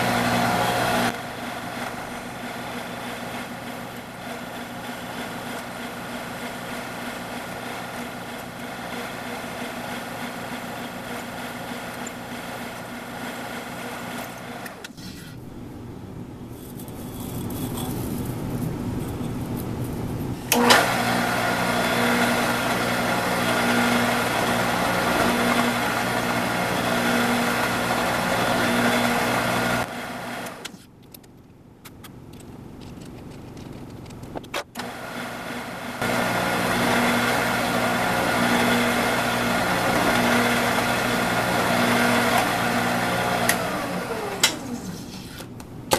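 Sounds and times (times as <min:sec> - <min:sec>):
drill press motor drilling metal: 0:00.0 - 0:15.4, 0:20.5 - 0:30.8, 0:34.8 - 0:45.2.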